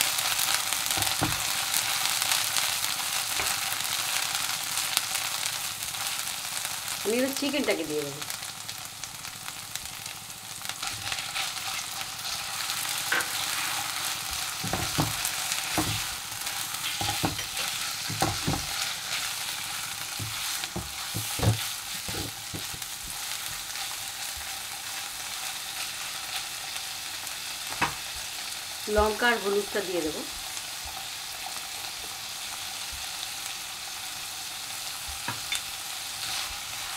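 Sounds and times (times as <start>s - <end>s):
chicken sizzling in oil: 0.0s - 36.9s
spatula knocking and scraping pan: 0.9s - 1.6s, 14.6s - 16.2s, 16.8s - 19.1s, 20.1s - 23.2s.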